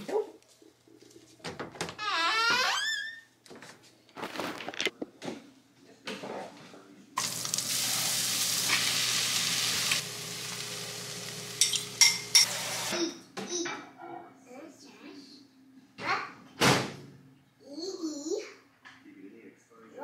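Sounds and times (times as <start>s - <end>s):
food sizzling in a frying pan: 7.2s - 12.9s.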